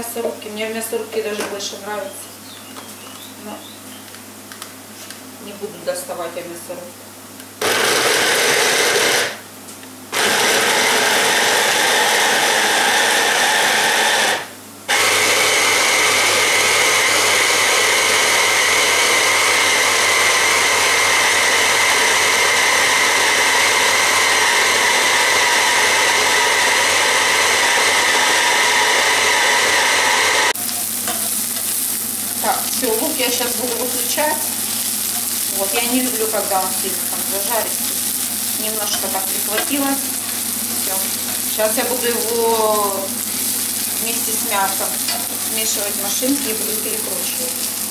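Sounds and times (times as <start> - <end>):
electric blender chopper motor: 7.6 - 9.4, 10.1 - 30.6
onion sizzling in a frying pan: 30.5 - 47.9.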